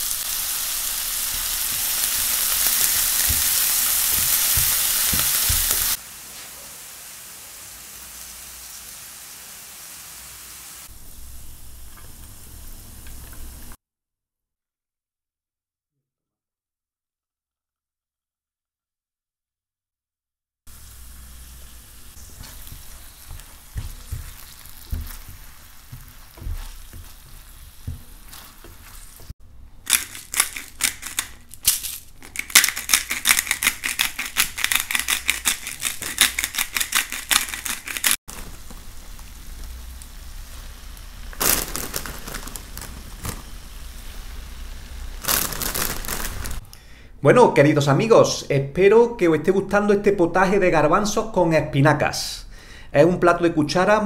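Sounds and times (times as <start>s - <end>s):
sauce sizzling in oil: 0.0s - 13.8s, 20.7s - 29.4s, 33.3s - 46.6s
pepper mill grinding: 29.8s - 38.6s, 41.4s - 43.5s, 45.2s - 46.6s.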